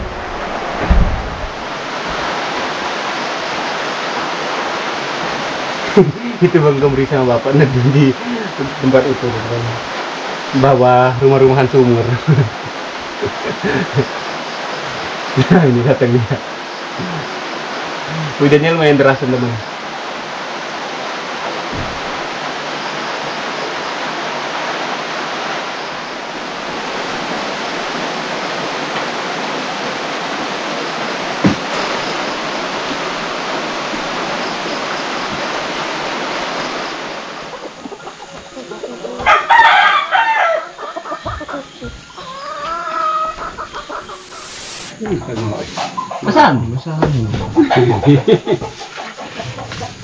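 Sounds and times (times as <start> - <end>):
heavy rain hissing: 0.0 - 50.0
loud call rising and falling: 42.2 - 45.0.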